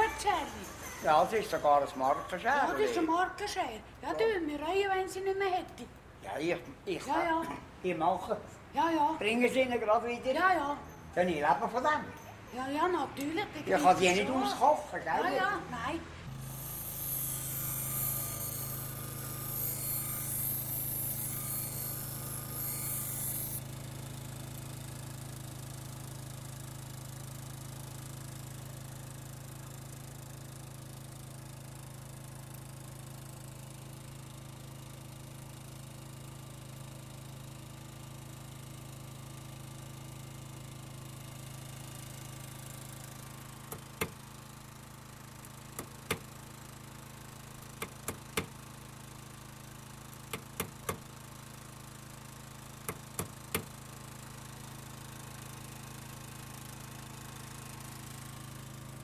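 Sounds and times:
scissors grinding on grinder: 0:16.3 - 0:23.6
sharp hammer taps: 0:45.8 - 0:46.3, 0:47.8 - 0:48.5, 0:52.9 - 0:53.7.

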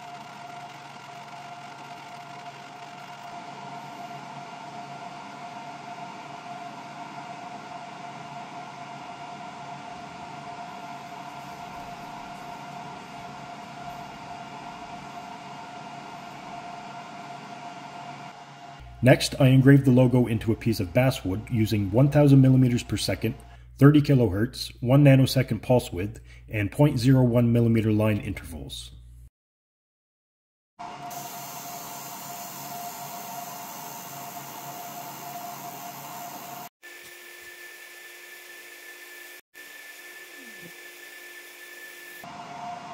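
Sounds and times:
laser engraver fan hum: 0:00.0 - 0:23.5, 0:31.0 - 0:42.9
mid-pitched whine: 0:01.2 - 0:26.8.

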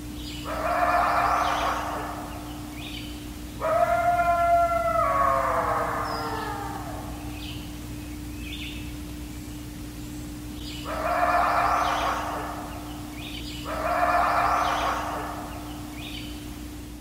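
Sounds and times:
steady low hum: 0:00.0 - 0:17.0
drawn-out animal calls: 0:00.4 - 0:07.6, 0:10.8 - 0:16.3.

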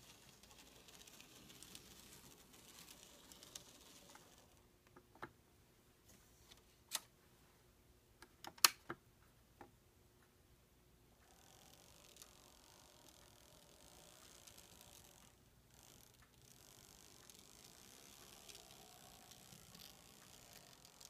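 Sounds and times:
model train clicking over turnouts: 0:00.0 - 0:04.6, 0:11.2 - 0:21.0.

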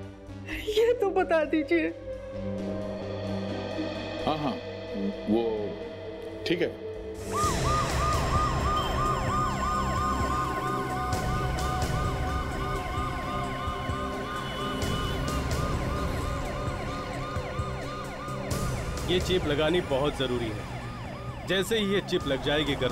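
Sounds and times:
ambulance siren: 0:05.4 - 0:22.9.

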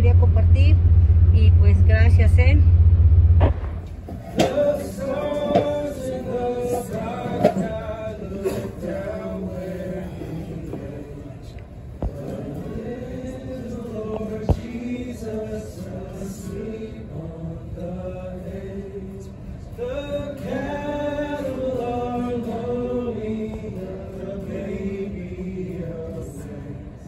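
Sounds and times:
acoustic guitar: 0:02.7 - 0:27.0
sharp knock: 0:03.4 - 0:04.6
voices singing along: 0:03.9 - 0:27.0
man singing: 0:04.4 - 0:27.0.

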